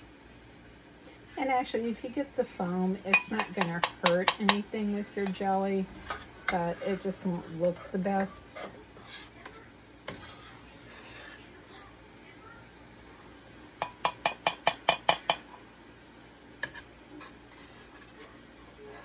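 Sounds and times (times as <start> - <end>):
metal spoon tapping ceramic bowl: 3.1 - 4.6, 13.8 - 15.4.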